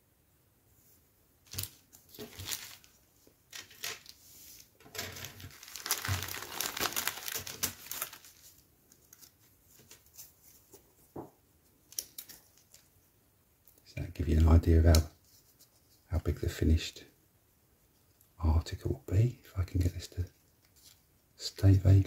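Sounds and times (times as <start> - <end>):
plastic bag crinkling: 1.5 - 4.2, 4.8 - 9.4.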